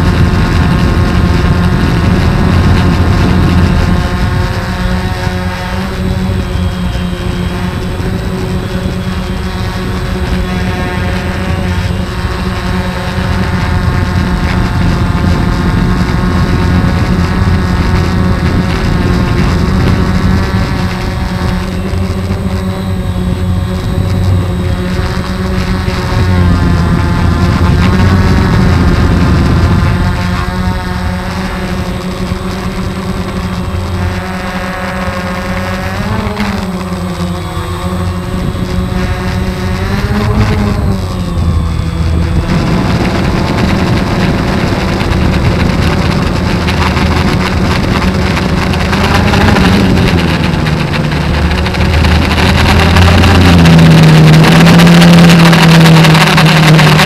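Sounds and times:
drone propellers whirring: 0.0s - 57.0s
low rumble: 35.6s - 57.0s.

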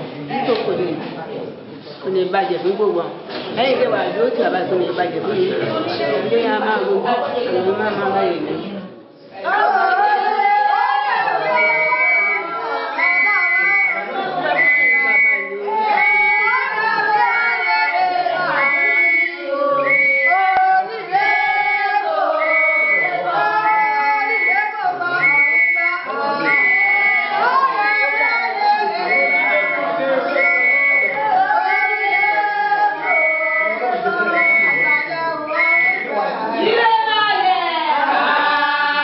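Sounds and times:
voices singing over music: 9.2s - 39.0s.

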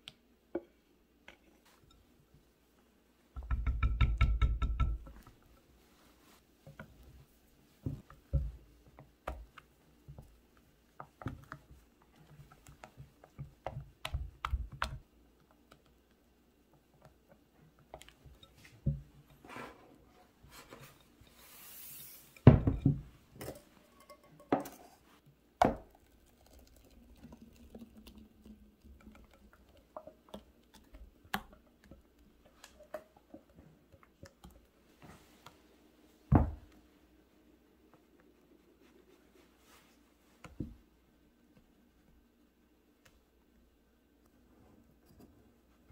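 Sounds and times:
batter pouring into pan: 25.7s - 28.6s.

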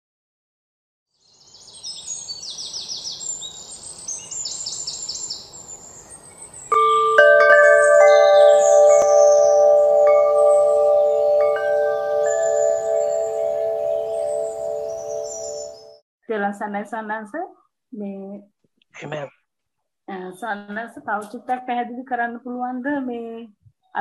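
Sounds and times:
birds chirping in high trills: 1.2s - 16.0s
chimes ringing: 6.7s - 16.0s.

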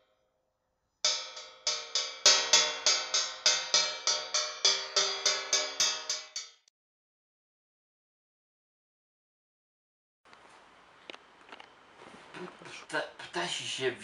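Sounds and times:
struck ringing notes: 1.1s - 6.7s.

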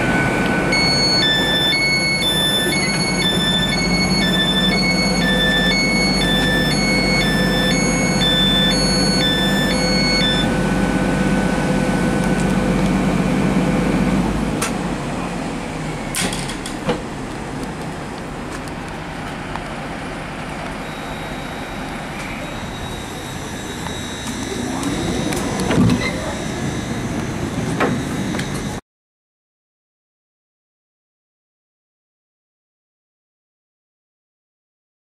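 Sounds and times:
sliding door mechanism whine: 0.0s - 17.4s, 20.3s - 28.8s
train equipment humming: 0.0s - 28.8s
electronic beeps: 0.2s - 10.5s, 20.8s - 27.2s.

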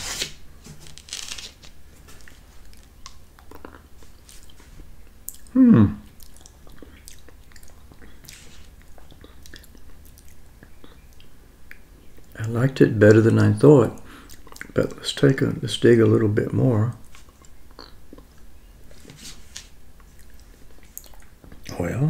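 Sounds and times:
man humming mm: 5.5s - 6.1s.

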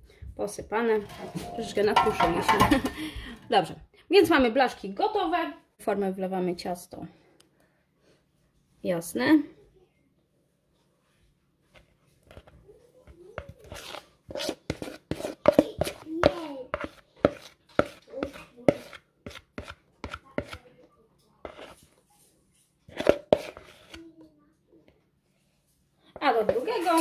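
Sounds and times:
utensil scraping mixing bowl: 0.8s - 2.9s, 12.2s - 20.7s, 21.4s - 22.1s, 22.9s - 24.1s, 26.2s - 27.0s.

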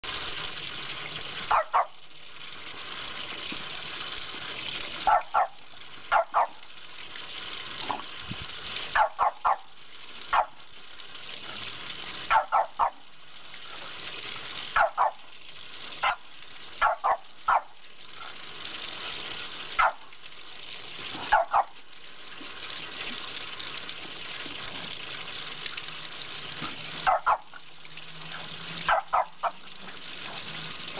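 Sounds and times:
water jet hissing on concrete: 0.0s - 30.9s
dog barking: 1.5s - 2.0s, 5.0s - 6.6s, 8.9s - 9.7s, 10.3s - 10.6s, 12.3s - 13.0s, 14.8s - 15.2s, 16.8s - 17.8s, 19.8s - 20.0s, 21.3s - 21.8s, 27.0s - 27.5s, 28.9s - 29.6s.

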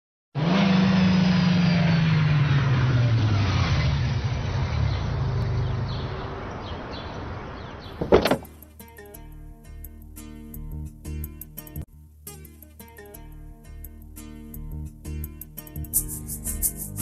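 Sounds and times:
sports car driving past: 0.4s - 7.9s
loud thump: 8.0s - 8.5s
music: 8.4s - 17.0s.

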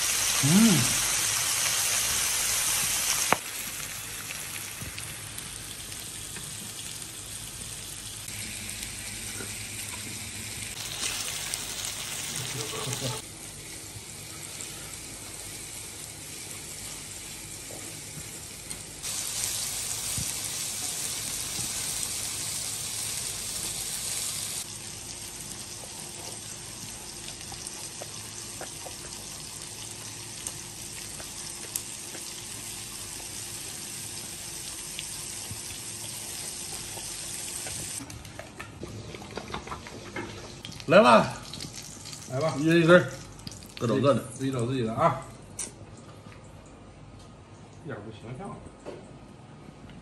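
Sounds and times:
meat sizzling on a grill: 0.0s - 38.0s.

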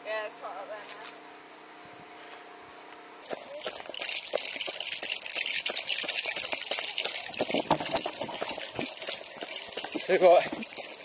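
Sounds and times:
rushing water: 3.3s - 11.0s
crackles and knocks: 7.3s - 10.7s.

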